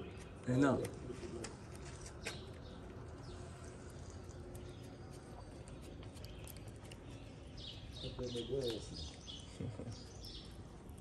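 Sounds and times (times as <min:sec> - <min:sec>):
faint chewing clicks: 0:02.3 - 0:07.8
cat eating wet food: 0:02.6 - 0:08.0.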